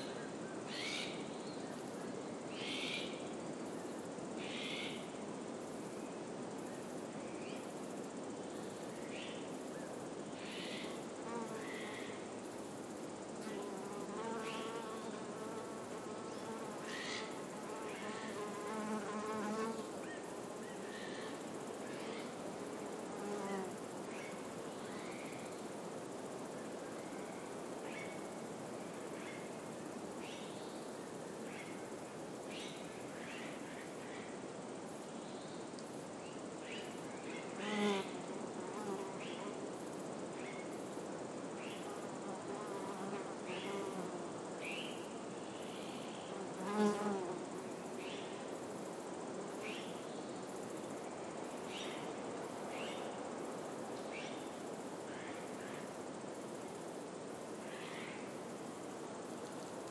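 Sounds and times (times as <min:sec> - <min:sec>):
flying insect buzzing: 0:10.5 - 0:12.2, 0:13.4 - 0:24.4, 0:37.3 - 0:39.6, 0:41.8 - 0:44.8, 0:46.2 - 0:48.2.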